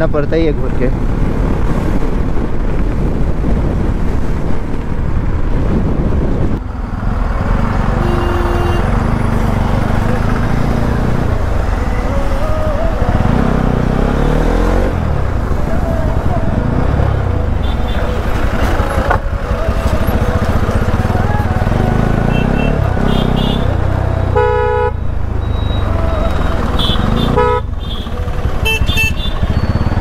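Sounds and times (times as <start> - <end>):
wind rush: 0.9 - 8.0
motorcycle engine: 3.4 - 30.0
vehicle horn: 8.0 - 9.0, 17.6 - 18.4, 22.2 - 25.0, 25.6 - 29.9.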